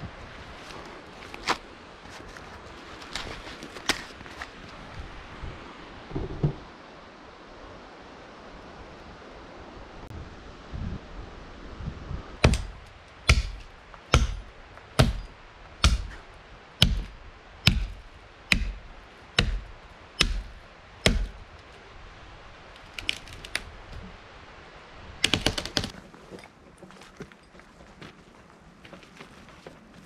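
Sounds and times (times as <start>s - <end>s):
axe chopping tree trunk: 12.4s - 16.2s, 16.8s - 21.4s
sharp wood cracks: 12.4s - 16.2s, 22.8s - 23.7s, 25.2s - 26.0s.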